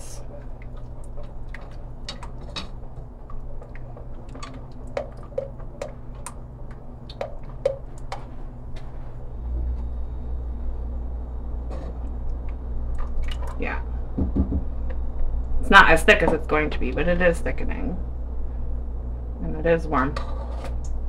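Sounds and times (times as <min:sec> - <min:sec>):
steady low hum: 0:00.0 - 0:21.0
utensil stirring sauce in saucepan: 0:00.3 - 0:08.4.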